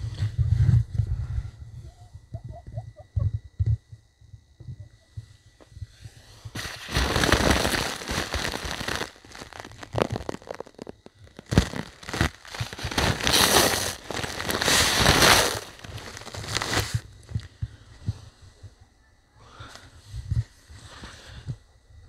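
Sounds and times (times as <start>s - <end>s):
ice crackling and crunching: 6.6s - 17.4s.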